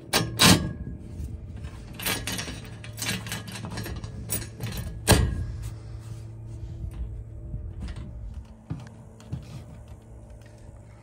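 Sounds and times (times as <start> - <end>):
metal clinks knocks and scrapes: 1.6 - 5.7.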